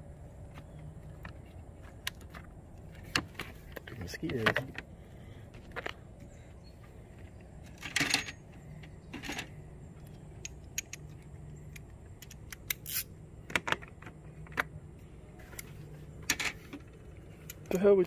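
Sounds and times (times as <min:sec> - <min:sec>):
plastic parts clicking and clattering: 0:07.6 - 0:08.5.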